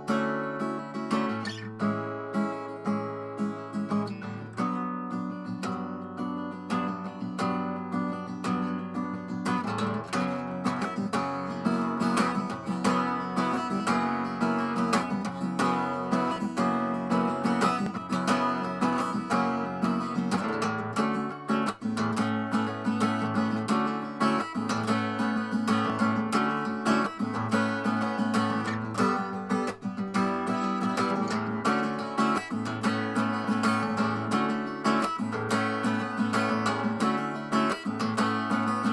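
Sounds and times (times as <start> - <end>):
strummed acoustic guitar chords: 0.0 - 38.9.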